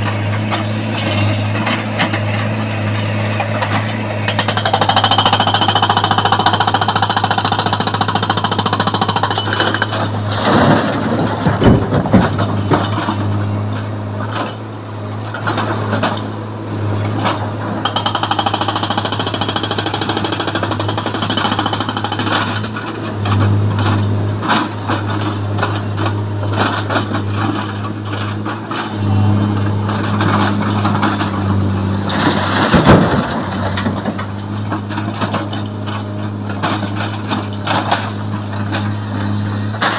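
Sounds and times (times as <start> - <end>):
excavator diesel engine running: 0.0 - 39.9
rocks crashing into steel truck bed: 9.5 - 13.2, 30.0 - 38.8.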